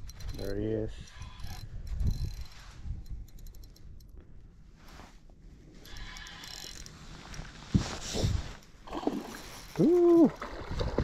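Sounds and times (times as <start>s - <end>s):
fishing reel clicking: 0.0s - 4.1s, 5.8s - 6.9s.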